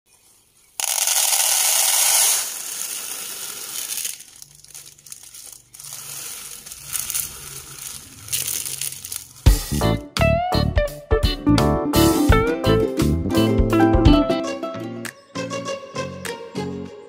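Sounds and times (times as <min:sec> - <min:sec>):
beans rattling into plastic bowl: 0:00.8 - 0:09.8
plastic bag crinkling: 0:00.8 - 0:09.8.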